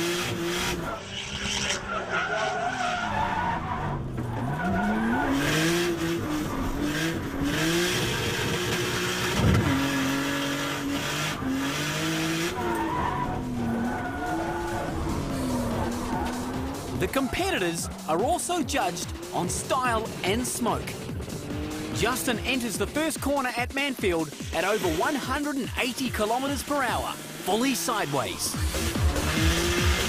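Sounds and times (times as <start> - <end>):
car engine revving: 0.0 - 30.0
tyres squealing: 12.0 - 20.5.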